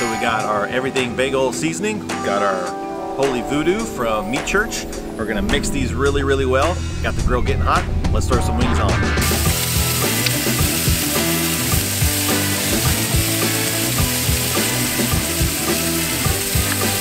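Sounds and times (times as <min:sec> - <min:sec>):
background music: 0:00.0 - 0:17.0
chicken sizzling on a griddle: 0:09.2 - 0:17.0.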